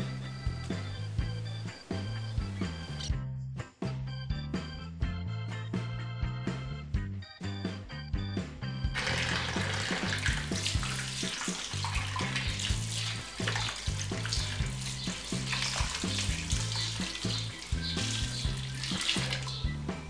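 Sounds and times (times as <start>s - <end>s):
background music with bass: 0.0s - 20.0s
tap water splashing into bowl: 9.0s - 19.7s.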